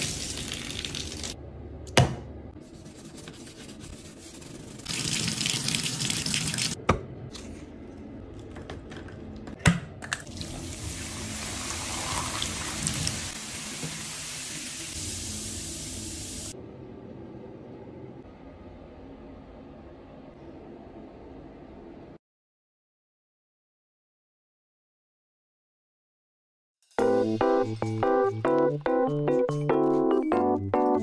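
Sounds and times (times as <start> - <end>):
water running from faucet: 0.0 - 1.4, 4.8 - 6.8, 10.2 - 16.6.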